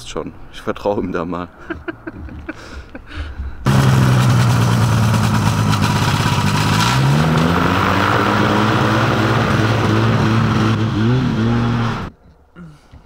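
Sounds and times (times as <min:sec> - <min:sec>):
paramotor propeller engine running: 0:03.7 - 0:07.1.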